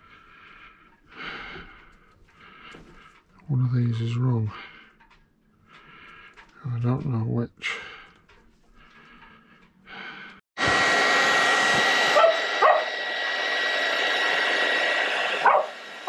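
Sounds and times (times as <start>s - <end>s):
hair dryer blowing: 10.6s - 16.0s.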